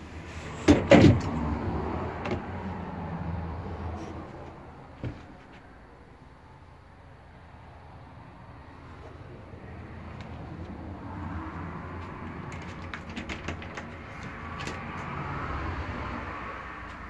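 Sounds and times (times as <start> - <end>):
sharp clicks and knocks: 12.0 - 15.2.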